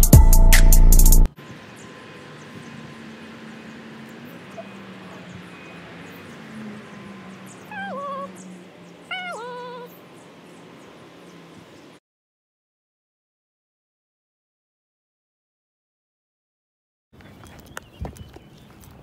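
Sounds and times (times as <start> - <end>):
faint outdoor background: 0.0 - 12.0, 17.2 - 19.0
animal calling: 1.8 - 11.5.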